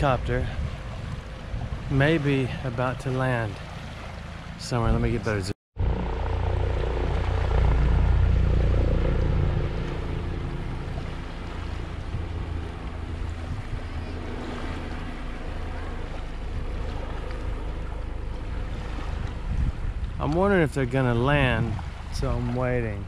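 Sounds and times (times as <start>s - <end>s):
small waves lapping: 0.0s - 5.4s, 6.6s - 23.0s
wind: 0.0s - 23.0s
helicopter engine and rotor drone: 5.8s - 20.6s.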